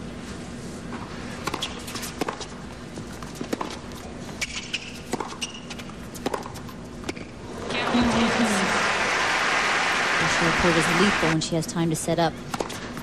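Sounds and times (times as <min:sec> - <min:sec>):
rackets striking tennis ball: 0:01.4 - 0:02.6, 0:03.3 - 0:03.8, 0:04.4 - 0:07.3.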